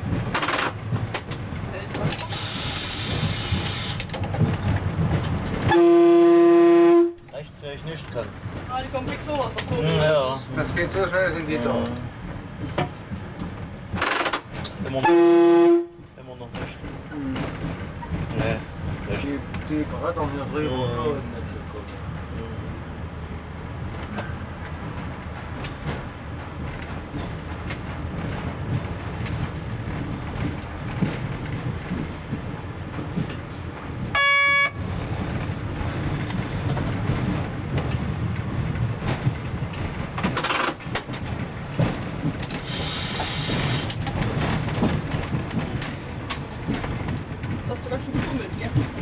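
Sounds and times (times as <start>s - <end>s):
railbus low drone: 0.0s - 49.0s
train horn blast: 5.6s - 7.3s, 15.0s - 16.0s, 34.1s - 34.9s
brief hiss: 42.6s - 43.9s.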